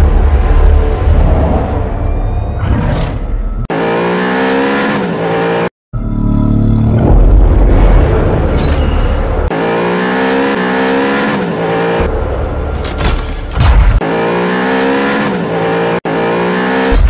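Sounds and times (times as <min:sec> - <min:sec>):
music: 0:00.0 - 0:03.7
car engine revving: 0:03.6 - 0:08.4, 0:09.3 - 0:17.0.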